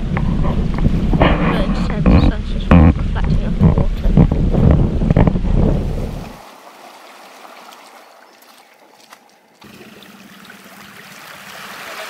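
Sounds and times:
small waves lapping: 0:05.7 - 0:12.0.

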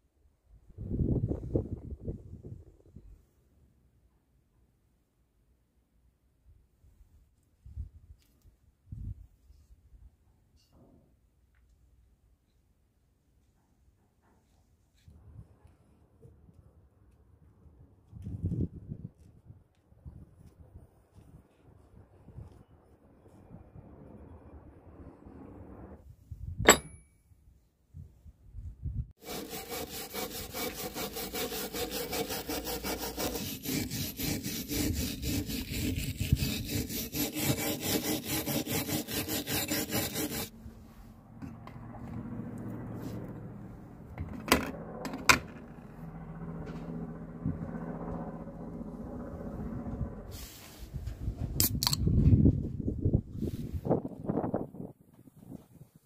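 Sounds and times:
iron pieces clinking on bench: 0:26.7 - 0:27.1
wire brush scrubbing metal: 0:29.2 - 0:40.5.

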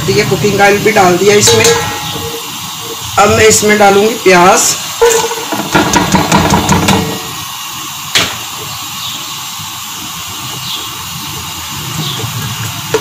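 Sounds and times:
frying sizzle: 0:00.0 - 0:13.0
onions clattering into oil: 0:01.4 - 0:02.5.

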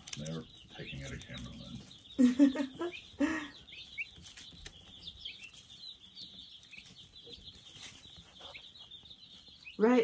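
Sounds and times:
chicks peeping: 0:00.0 - 0:10.0.

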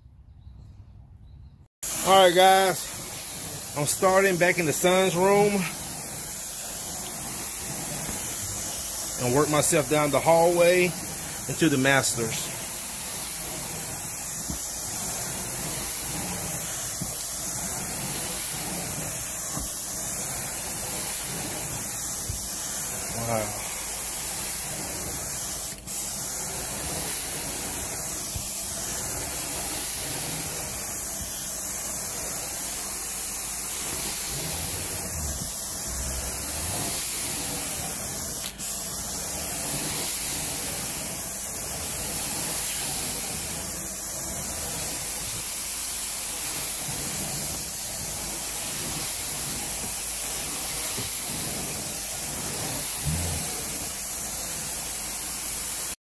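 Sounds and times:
carpet extraction wand hissing: 0:01.8 - 0:56.0.

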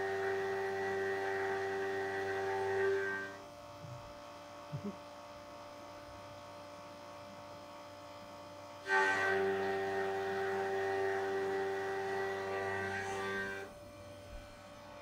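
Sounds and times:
milling machine whine: 0:00.0 - 0:04.6, 0:07.7 - 0:15.0
machine hum: 0:00.0 - 0:15.0.

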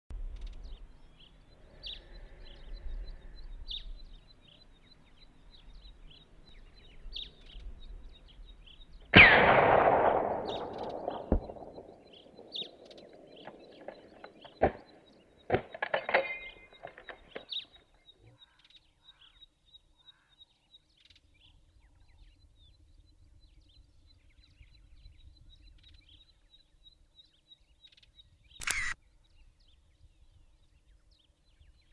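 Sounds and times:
rifle shot with rolling echo: 0:09.1 - 0:17.1
sharp clicks: 0:28.6 - 0:29.0.

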